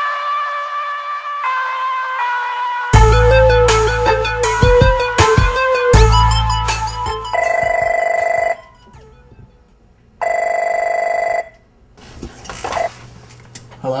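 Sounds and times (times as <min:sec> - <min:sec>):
electronic music: 0:00.0 - 0:07.9
electronic telephone ringing: 0:07.3 - 0:08.9, 0:10.2 - 0:11.6.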